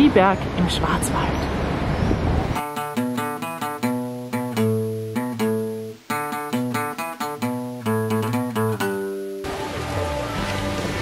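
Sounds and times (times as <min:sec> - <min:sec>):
plucked guitar melody: 0:02.6 - 0:11.0.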